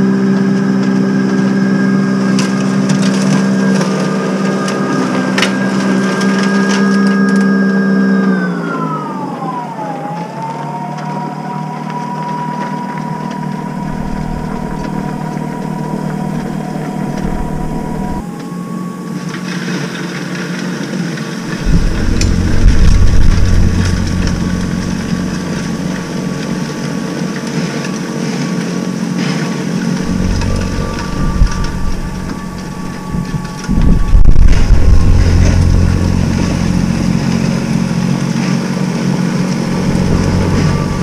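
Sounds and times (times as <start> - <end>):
snow blower motor whine: 0.0 - 41.0
low rumble: 12.7 - 18.2, 21.4 - 27.7, 29.9 - 41.0.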